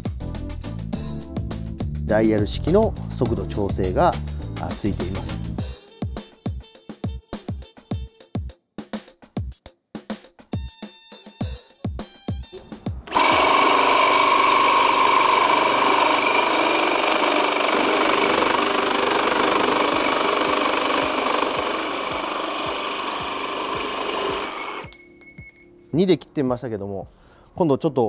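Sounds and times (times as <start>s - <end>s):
reciprocating saw cutting metal pipe: 13.1s - 25.0s.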